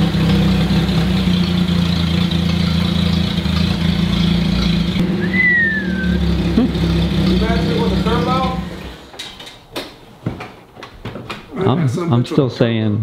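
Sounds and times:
car engine running: 0.0s - 9.1s
high whistle-like tone: 5.1s - 6.4s.

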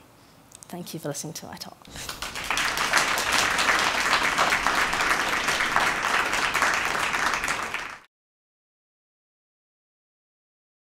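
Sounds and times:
audience applauding: 1.9s - 8.1s.

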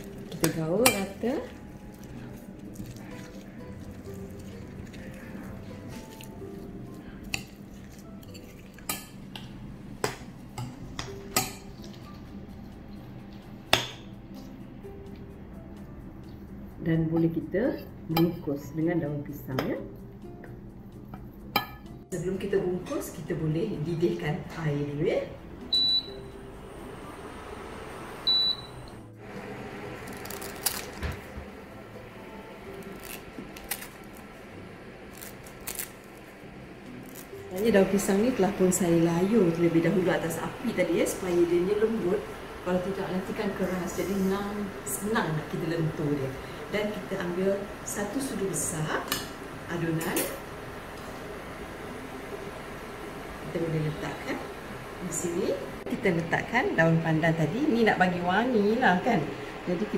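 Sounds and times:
spoon stirring thick mixture: 0.0s - 9.5s
scissors snipping leaves: 32.8s - 34.2s, 35.1s - 36.0s.

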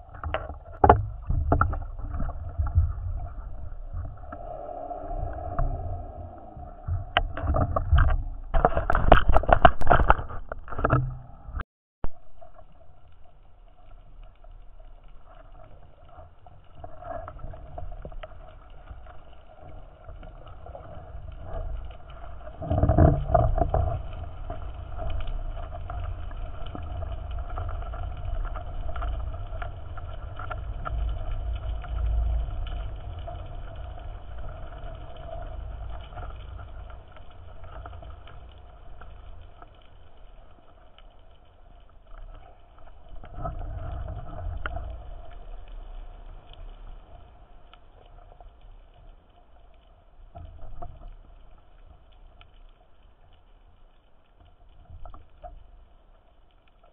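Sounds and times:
underwater water rushing: 0.0s - 53.2s.

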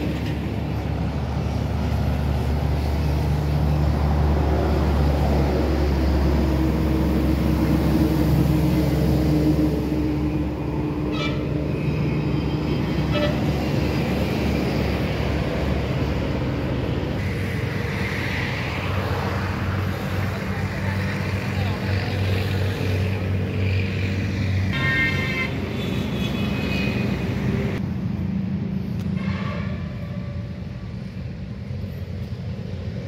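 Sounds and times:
road traffic noise: 0.0s - 33.0s
vehicle horn toots: 11.1s - 11.5s, 13.1s - 13.4s, 24.7s - 27.2s.

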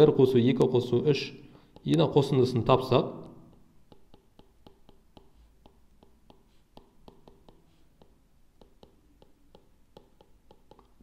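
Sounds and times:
stylus tapping on glass screen: 3.2s - 11.0s.

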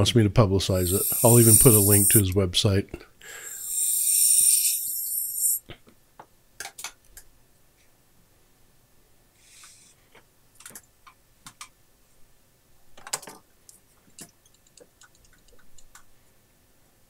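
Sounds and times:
short soft hiss: 0.8s - 2.2s, 3.3s - 5.6s
small parts and tools clicking: 0.8s - 2.2s, 3.5s - 5.6s.

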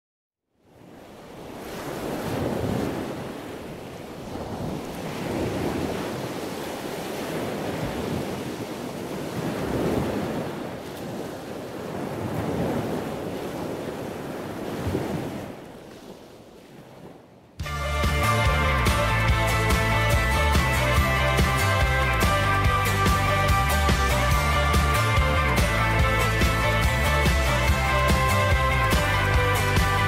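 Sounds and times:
ocean surf breaking on beach: 0.6s - 17.2s.

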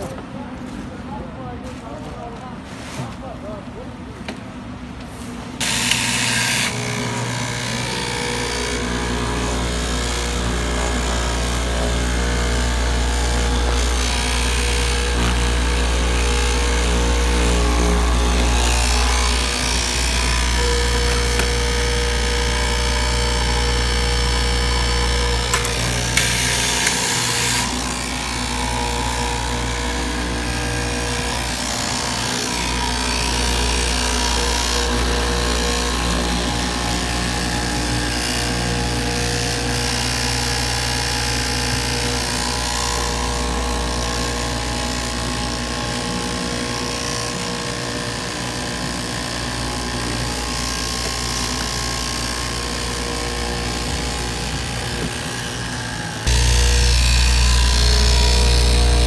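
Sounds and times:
fabric cutting machine running: 5.6s - 59.0s.

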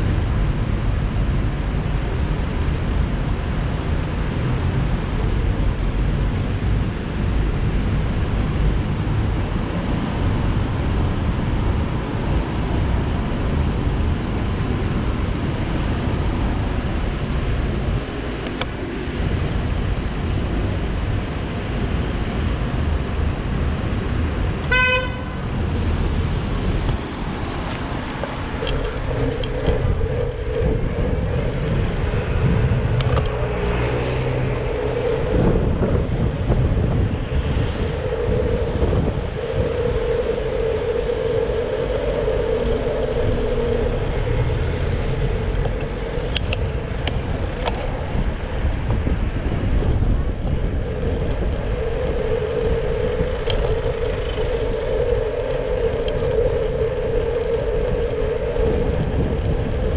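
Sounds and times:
traffic and road rumble: 0.0s - 59.9s
short horn beep: 24.7s - 25.3s.

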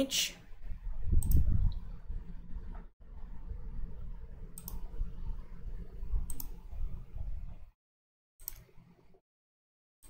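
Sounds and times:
computer mouse clicking: 1.2s - 1.8s, 4.6s - 4.9s, 6.2s - 6.6s, 8.4s - 8.9s.

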